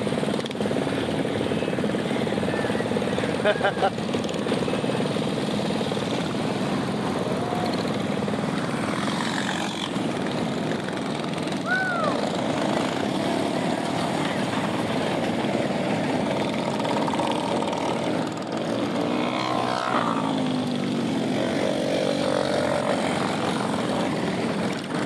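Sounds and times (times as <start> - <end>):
small engines buzzing: 0.0 - 25.0.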